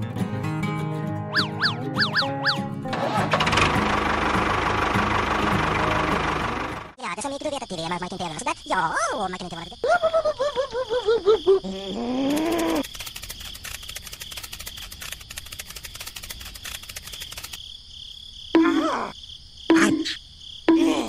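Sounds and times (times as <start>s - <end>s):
high-pitched cartoon voices: 7.0s - 12.8s, 18.6s - 21.0s
crickets chirping: 7.0s - 21.0s.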